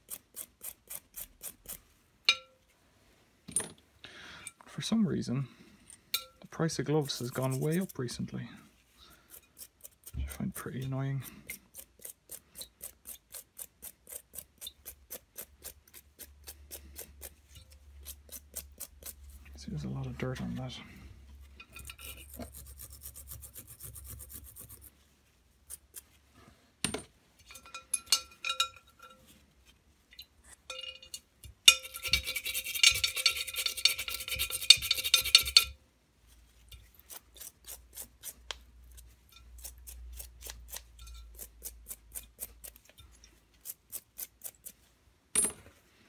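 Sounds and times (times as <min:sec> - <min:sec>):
scratchy rubbing of metal parts: 0:06.8 - 0:08.3, 0:21.6 - 0:26.3, 0:31.7 - 0:35.8
metal parts clinking against glass: 0:27.4 - 0:29.2, 0:30.1 - 0:35.8, 0:41.0 - 0:41.3.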